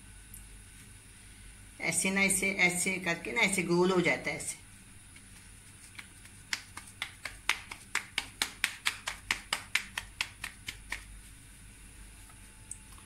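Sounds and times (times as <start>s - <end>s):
dough slapped between palms: 5.2s - 11.2s.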